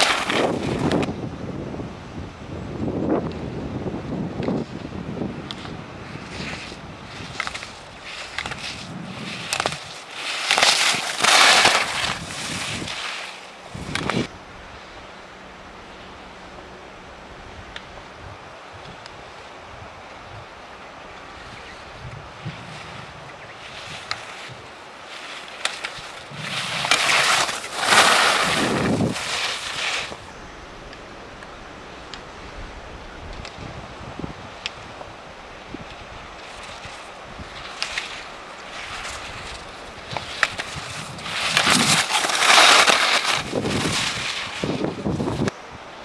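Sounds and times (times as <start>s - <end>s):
skis scraping on hard snow: 0.0s - 1.1s, 5.5s - 14.3s, 22.4s - 31.0s, 35.8s - 45.6s
wind on microphone: 0.0s - 10.0s, 10.9s - 13.0s, 13.7s - 14.7s, 21.2s - 24.8s, 26.0s - 45.9s.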